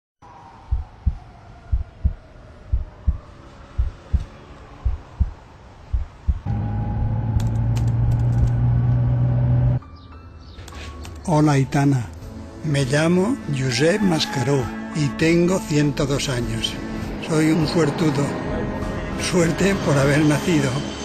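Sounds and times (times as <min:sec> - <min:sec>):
slow heartbeat: 0:00.6 - 0:06.5
car cabin hum: 0:06.0 - 0:09.8.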